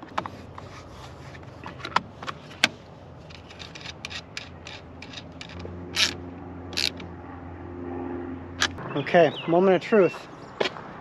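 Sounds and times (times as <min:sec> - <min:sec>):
small metallic clicks: 0:01.6 - 0:07.1.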